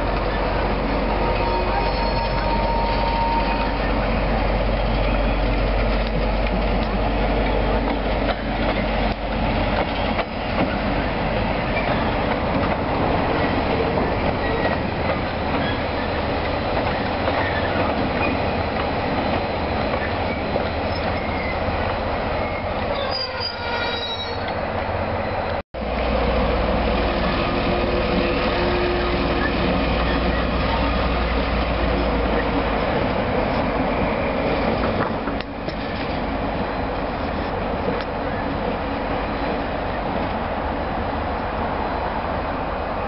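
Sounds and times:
locomotive rolling rumble: 0.0 - 43.0
wheel squeal: 1.4 - 3.8, 20.0 - 21.7, 22.4 - 24.6.

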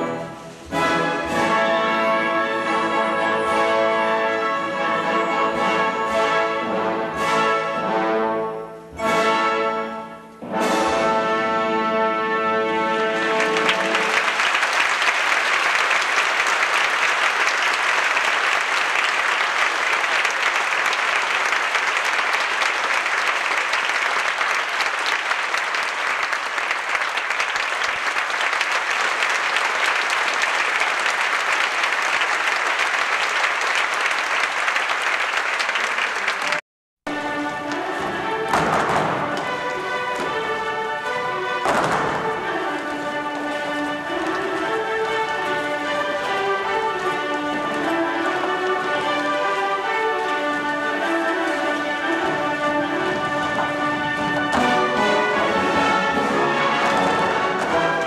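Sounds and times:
orchestra playing chords: 0.0 - 26.6, 37.1 - 58.0
audience applauding: 13.0 - 58.0.

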